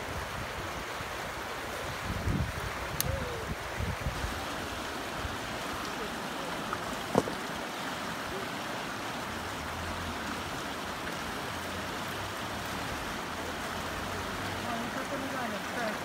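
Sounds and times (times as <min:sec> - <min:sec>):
river rushing over rocks: 0:00.0 - 0:16.0.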